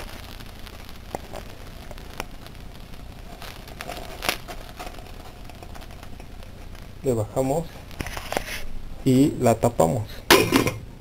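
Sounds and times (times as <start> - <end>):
small pops: 0.0 - 4.8
hot oil sizzling and crackling: 0.0 - 11.0.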